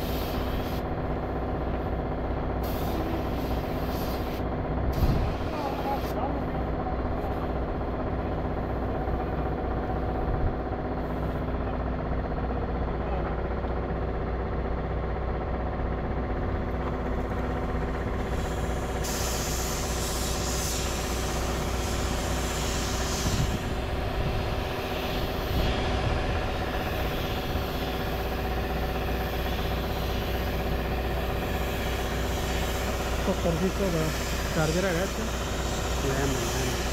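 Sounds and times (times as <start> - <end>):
spray gun hissing: 0.0 - 0.9, 2.6 - 6.5, 18.1 - 36.9.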